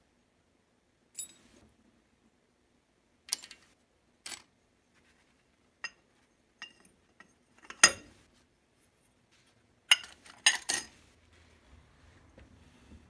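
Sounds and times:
metal parts clinking: 0:03.3 - 0:04.5, 0:09.9 - 0:11.0.

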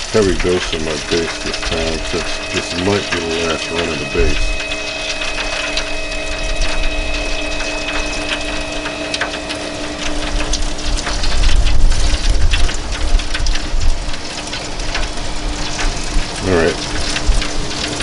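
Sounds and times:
baste crackling in hot pan: 0:00.0 - 0:18.0
wind rumble on microphone: 0:10.0 - 0:18.0.

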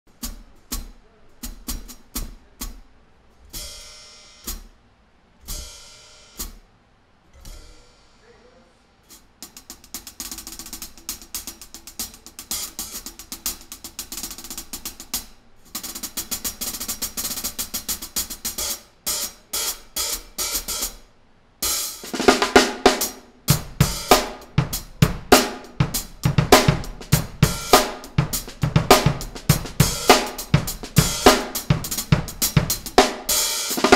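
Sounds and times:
snare drum: 0:00.1 - 0:02.9, 0:09.1 - 0:21.0, 0:21.6 - 0:33.9
bass drum: 0:00.1 - 0:04.7, 0:05.4 - 0:06.6, 0:22.1 - 0:33.9
hi-hats played with drumsticks: 0:00.1 - 0:33.9.

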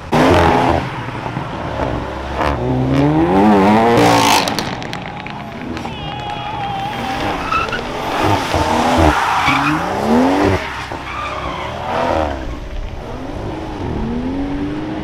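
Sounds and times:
car engine revving: 0:00.0 - 0:15.0
tyres screeching: 0:03.9 - 0:12.6.

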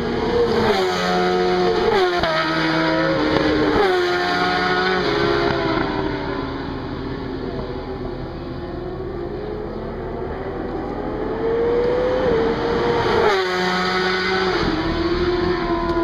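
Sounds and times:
motorcycle engine revving: 0:00.0 - 0:07.2, 0:07.8 - 0:16.0.

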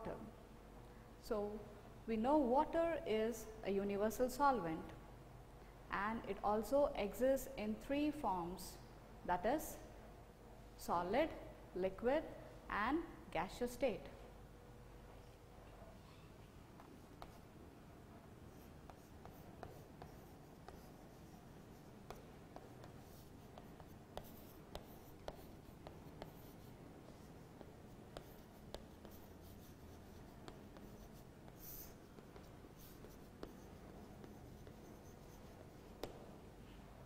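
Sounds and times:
chalk tapping on chalkboard: 0:16.8 - 0:17.4, 0:18.5 - 0:36.3
chalk scratching on chalkboard: 0:18.5 - 0:36.2.

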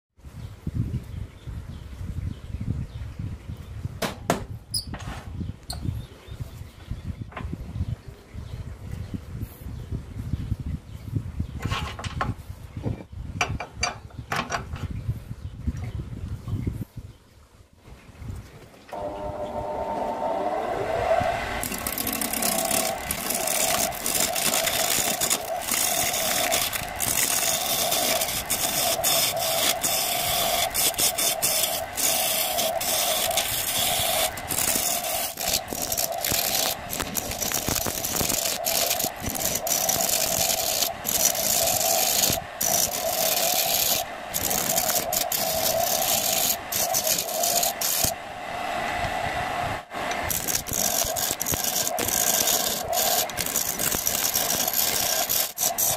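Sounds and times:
wood lathe humming: 0:18.9 - 0:48.2, 0:50.1 - 0:55.9
chisel scraping spinning wood: 0:20.3 - 0:48.2, 0:50.1 - 0:55.9.

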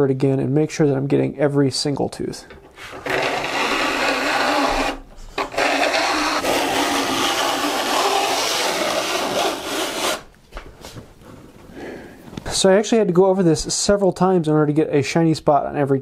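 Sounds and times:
steel file rasping on saw teeth: 0:02.9 - 0:10.3.

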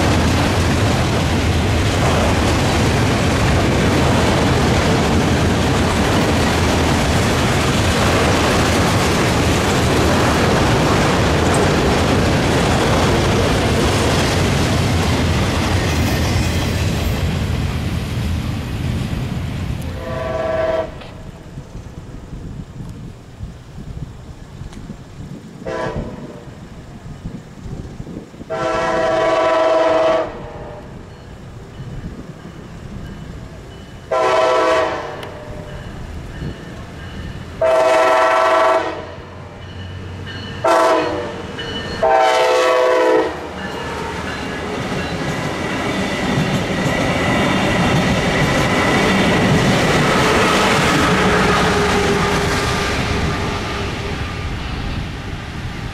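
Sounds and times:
train rumble: 0:00.0 - 0:55.9
locomotive air horn blasts: 0:19.8 - 0:21.2, 0:25.6 - 0:26.4, 0:28.5 - 0:30.9, 0:34.1 - 0:35.7, 0:37.6 - 0:39.2, 0:40.6 - 0:44.2.

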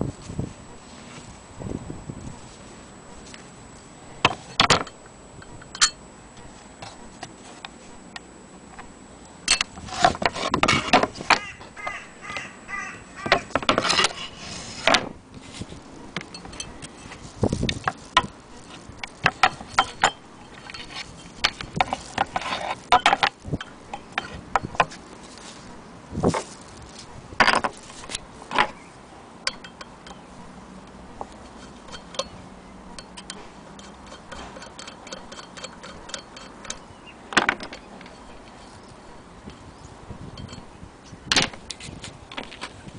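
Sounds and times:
metal and wood knocking: 0:27.4 - 0:27.8, 0:33.0 - 0:38.3.

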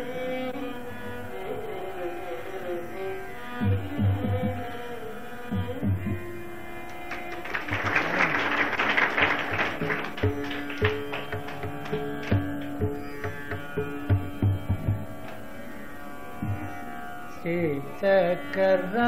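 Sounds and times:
instrumental classical melody: 0:04.9 - 0:19.0.

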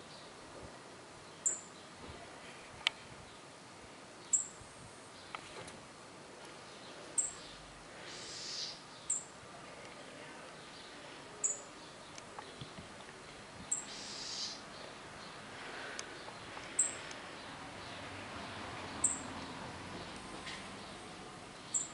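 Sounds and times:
soft hiss: 0:00.0 - 0:18.0
small bird chirping: 0:01.3 - 0:01.9, 0:04.2 - 0:04.5, 0:06.7 - 0:09.3, 0:10.6 - 0:12.8, 0:13.7 - 0:15.4, 0:16.1 - 0:18.0, 0:19.0 - 0:19.3, 0:21.6 - 0:21.9.

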